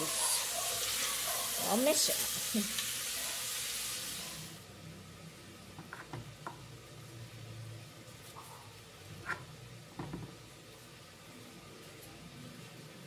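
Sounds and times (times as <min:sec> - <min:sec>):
beef sizzling in a pot: 0:00.0 - 0:04.8.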